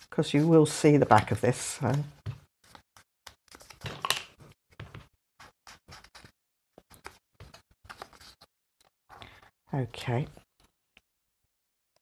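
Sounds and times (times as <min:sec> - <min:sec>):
paper rustling: 0:00.4 - 0:08.5.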